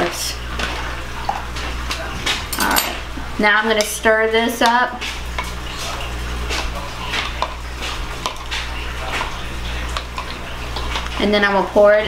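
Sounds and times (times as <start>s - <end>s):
metal spoon clinking against glass: 2.5s - 3.0s.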